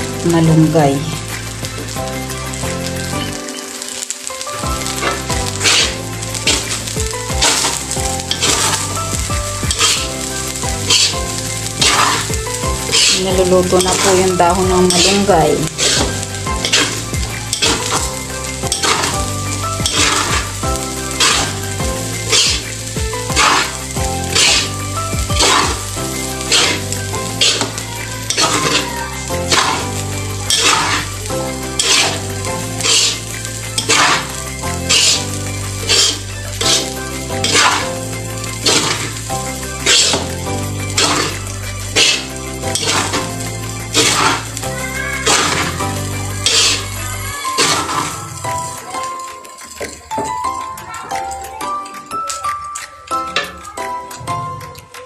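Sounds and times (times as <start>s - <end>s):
rice sizzling in a wok: 0.0s - 51.6s
spatula scraping a wok: 4.8s - 37.9s, 38.5s - 44.6s, 45.2s - 45.8s, 46.4s - 48.8s.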